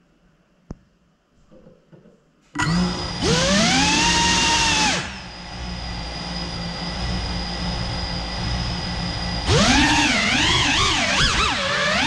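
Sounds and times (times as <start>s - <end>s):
drone motors whining: 2.6s - 12.0s.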